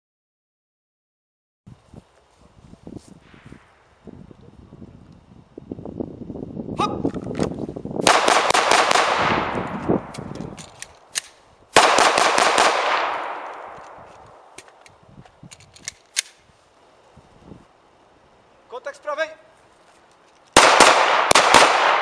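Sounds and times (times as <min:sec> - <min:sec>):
pistol shots echoing: 0:08.0 - 0:09.6, 0:11.8 - 0:14.6, 0:20.6 - 0:22.0.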